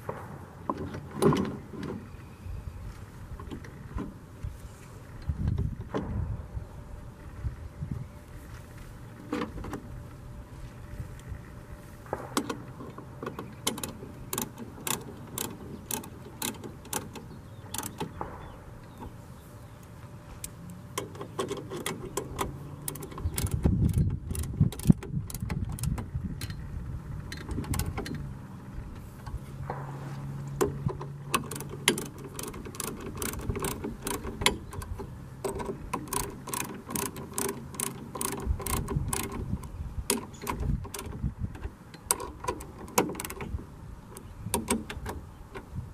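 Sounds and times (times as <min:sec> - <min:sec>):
file scraping chainsaw chain: 0:31.4 - 0:39.6.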